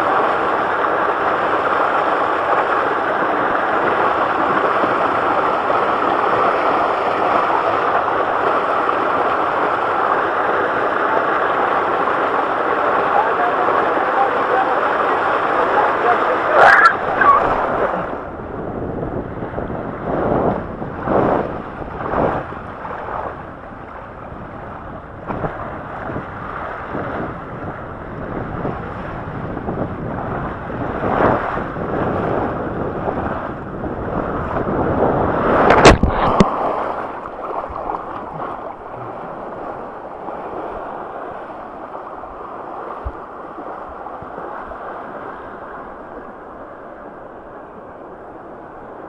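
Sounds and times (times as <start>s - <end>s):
water rushing along a slide: 0.0s - 49.0s
wind buffeting microphone: 15.4s - 41.5s
loud splash: 35.3s - 39.3s.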